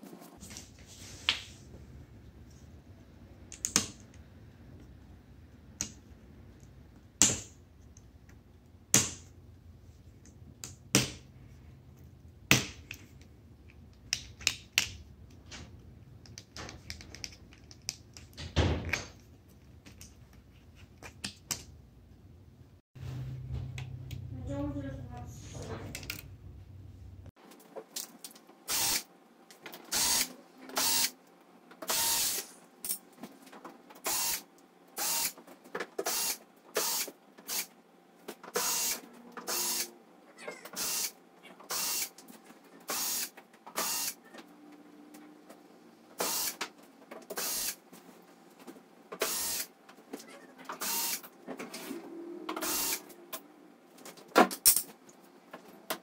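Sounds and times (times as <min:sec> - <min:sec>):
cordless drill running: 0:28.7 - 0:29.0, 0:29.9 - 0:31.1, 0:31.9 - 0:32.5, 0:34.1 - 0:34.4, 0:35.0 - 0:35.4, 0:36.0 - 0:37.7, 0:38.6 - 0:39.9, 0:40.8 - 0:41.1, 0:41.7 - 0:42.1, 0:42.9 - 0:44.2, 0:46.2 - 0:46.6, 0:47.4 - 0:47.8, 0:49.2 - 0:49.7, 0:50.8 - 0:51.2, 0:52.6 - 0:53.0.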